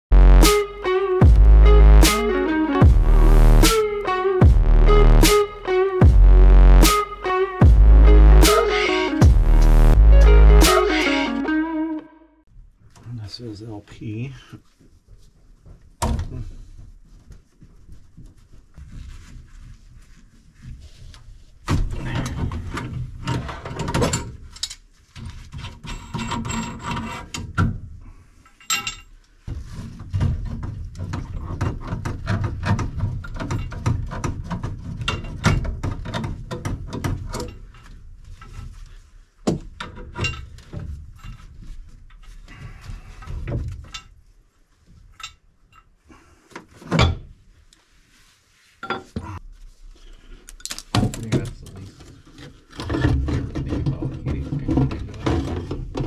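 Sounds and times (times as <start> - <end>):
clicks knocks and metal clatter: 20.7 - 27.9, 28.5 - 38.8, 39.4 - 42.5, 43.2 - 44.2, 50.4 - 56.0.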